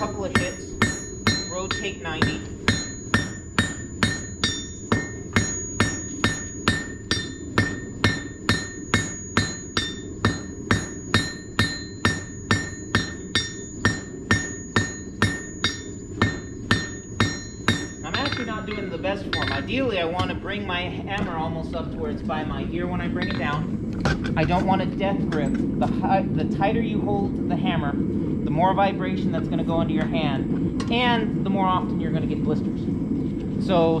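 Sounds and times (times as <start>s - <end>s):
anvil ringing: 0.0s - 20.5s, 23.1s - 24.7s
hammer striking steel on anvil: 0.0s - 20.5s, 23.1s - 25.6s.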